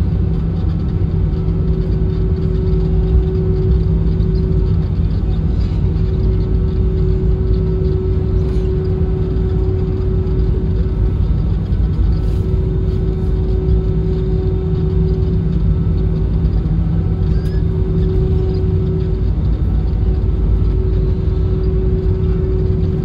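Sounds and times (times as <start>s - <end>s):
airplane cabin low rumble: 0.0s - 23.0s
jet engines humming: 0.0s - 23.0s.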